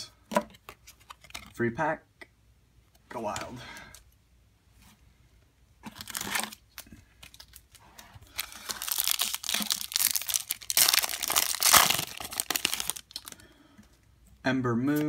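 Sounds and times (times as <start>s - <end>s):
plastic wrapper crinkling and tearing: 5.8s - 13.4s.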